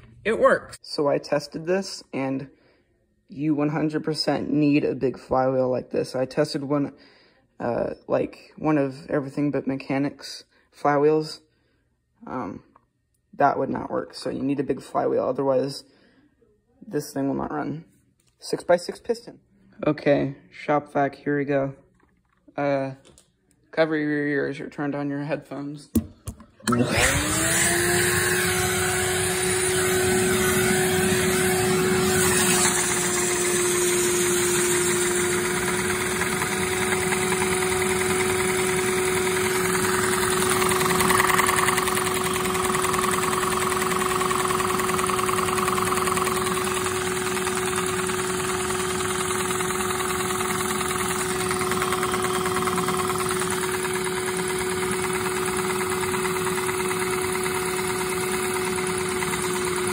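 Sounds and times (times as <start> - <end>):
shop vacuum motor whine: 26.6 - 59.9.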